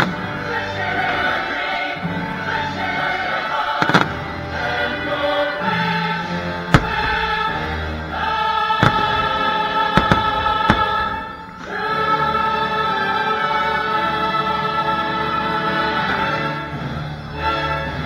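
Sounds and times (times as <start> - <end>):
music with choir singing: 0.0 - 18.0
firework shells bursting: 3.8 - 4.2, 6.7 - 8.0, 8.8 - 11.5
sharp bangs: 3.8 - 4.4, 6.5 - 11.6.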